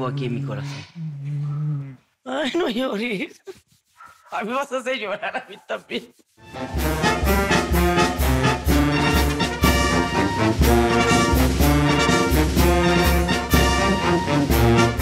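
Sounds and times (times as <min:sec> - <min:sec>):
brass music with steady beat: 0:06.4 - 0:15.0.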